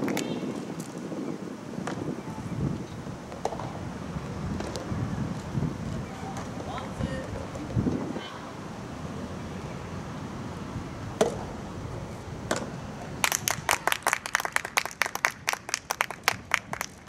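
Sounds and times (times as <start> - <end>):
outdoor background hiss: 0.0 - 17.0
spectators clapping: 13.2 - 17.0.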